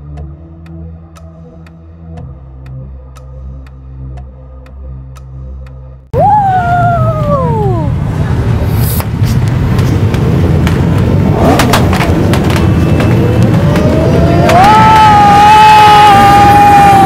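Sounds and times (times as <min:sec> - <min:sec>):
low rumble: 0:00.0 - 0:17.0
siren wailing: 0:12.8 - 0:17.0.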